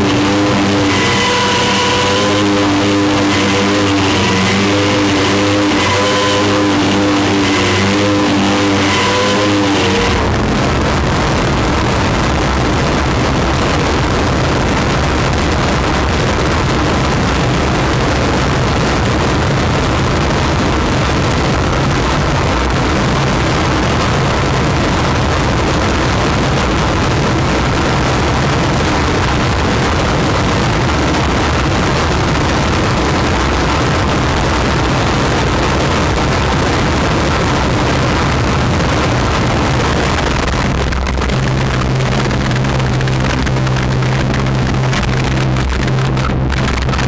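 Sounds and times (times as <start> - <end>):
harsh noise instrument: 0.0 - 18.7, 36.8 - 47.0
low hum: 0.0 - 47.0.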